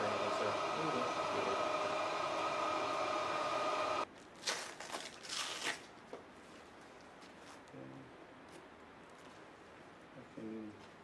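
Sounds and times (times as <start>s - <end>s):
machine hum with tones: 0.0s - 4.0s.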